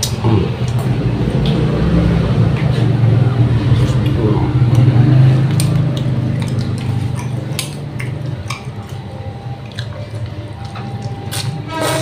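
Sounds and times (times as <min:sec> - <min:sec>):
wet chewing: 0:03.7 - 0:12.0.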